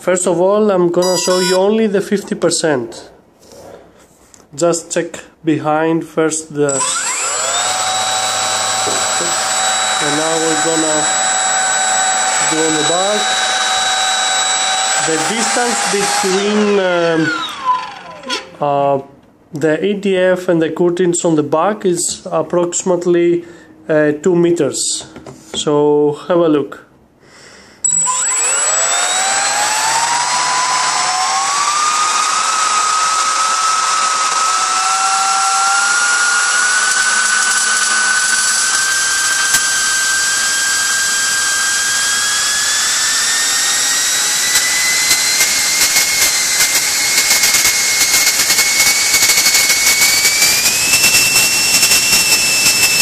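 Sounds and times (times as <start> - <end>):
electric fan motor whine: 6.7 - 18.5, 27.9 - 53.0.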